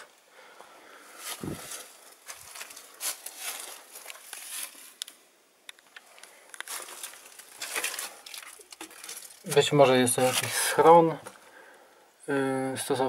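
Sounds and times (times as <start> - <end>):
rustling and crackling leaves: 1.1 - 5.3, 6.0 - 10.8.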